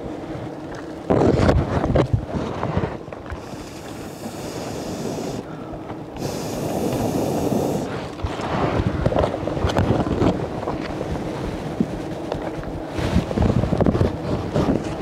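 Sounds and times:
wind buffeting microphone: 0.0 - 15.0
high hiss: 3.4 - 5.5, 6.2 - 8.0.

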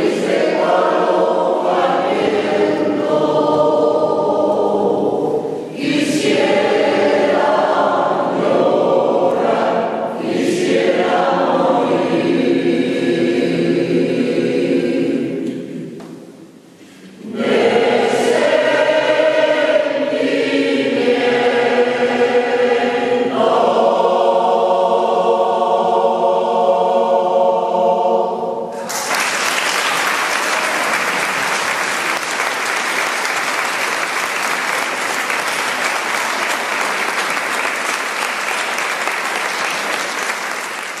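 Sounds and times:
choir singing: 0.0 - 16.2, 17.0 - 41.0
audience applause: 28.8 - 41.0.

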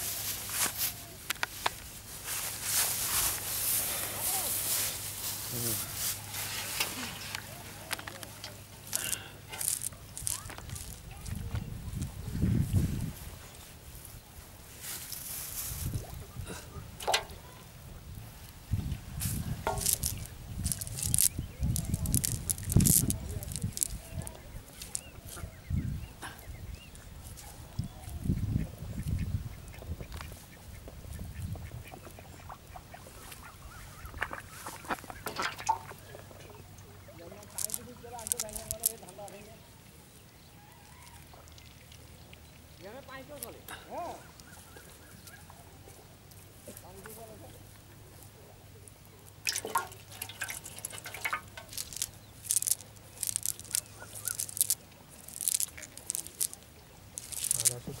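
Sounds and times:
net rustling: 0.0 - 12.0, 14.0 - 16.1, 19.2 - 25.5, 37.4 - 39.4, 49.3 - 58.0
mud and weed pattering: 0.0 - 17.8, 18.4 - 28.4, 29.8 - 39.6, 44.2 - 58.0.

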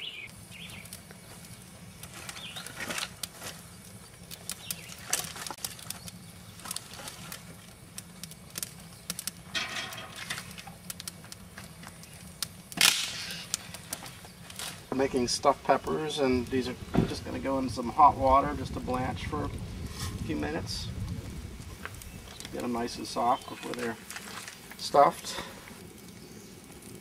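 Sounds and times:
campfire crackling and popping: 0.0 - 27.0
sticks knocking and rustling: 2.0 - 3.6, 4.4 - 7.6.

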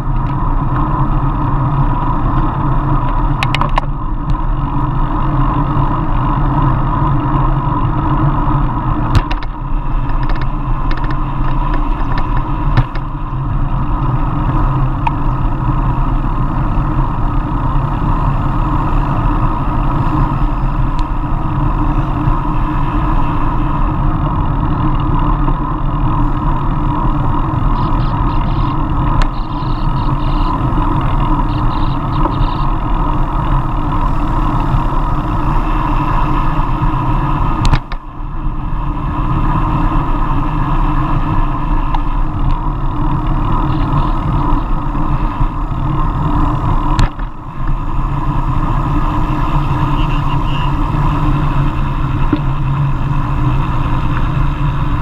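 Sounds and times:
tyre and road noise: 0.0 - 55.0
wind rush on microphone: 0.0 - 55.0.

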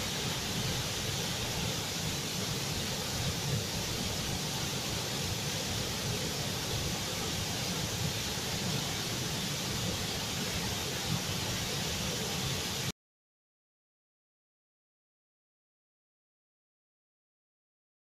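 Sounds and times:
waterfall rushing: 0.0 - 12.9.

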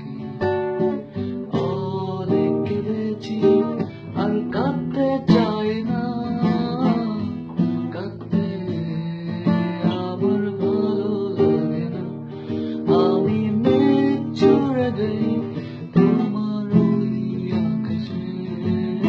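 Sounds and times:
acoustic guitar strumming chords: 0.0 - 19.0
man singing: 0.0 - 19.0.

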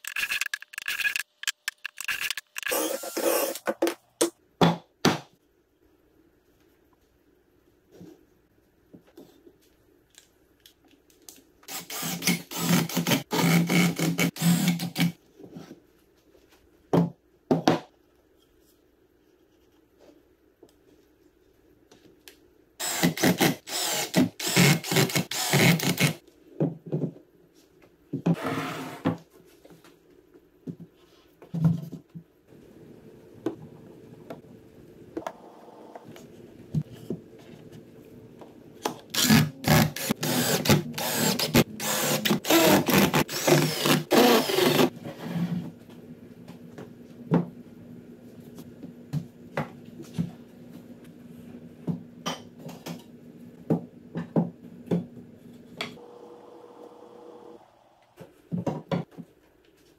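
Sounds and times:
cordless drill driving screws: 2.7 - 3.6, 11.7 - 13.1, 22.8 - 26.1, 39.2 - 44.9.

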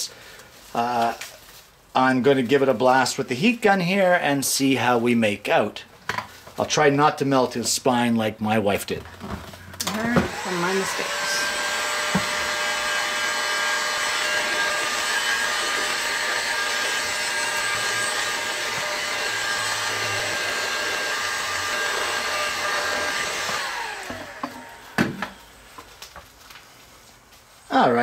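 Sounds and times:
heat gun fan whining: 9.2 - 26.2.

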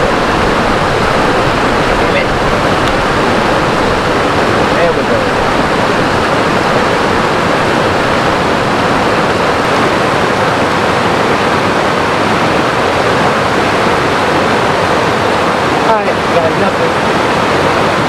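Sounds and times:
stream rushing over rocks: 0.0 - 18.0.

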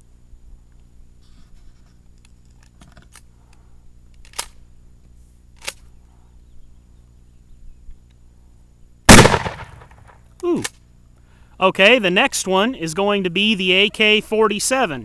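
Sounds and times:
faint steady hum: 0.0 - 15.0
shotgun mechanism clicks: 4.1 - 4.6, 5.6 - 5.9.

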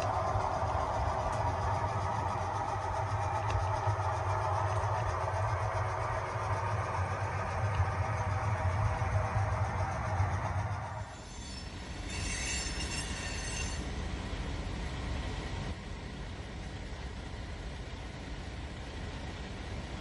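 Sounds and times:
loud hum: 0.0 - 11.1
model train wheels rumbling on rail: 0.0 - 20.0
high-pitched wheel squeal: 11.0 - 14.0.

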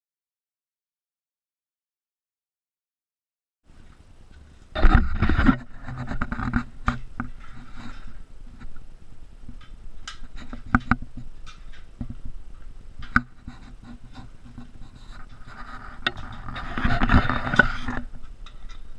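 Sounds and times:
scraping and thumps: 3.8 - 18.9.

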